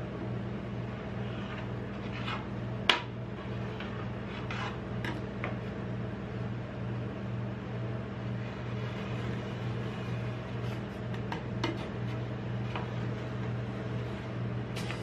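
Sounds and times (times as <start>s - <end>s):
low machine hum: 0.0s - 15.0s
knife scraping on metal plate: 3.4s - 5.2s.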